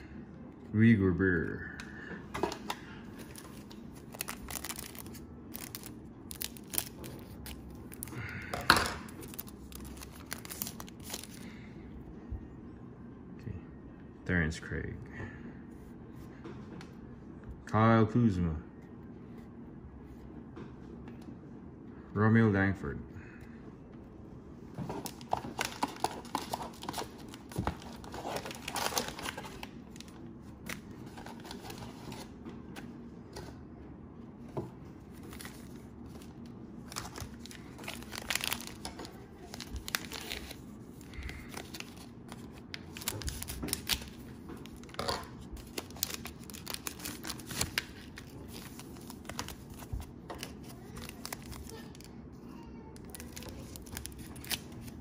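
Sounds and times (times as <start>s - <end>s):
trading cards being handled: 2.4s - 8.1s, 9.0s - 11.4s
cellophane wrappers crinkling and tearing: 2.6s - 11.6s, 24.9s - 32.3s, 35.1s - 52.2s, 53.0s - 55.0s.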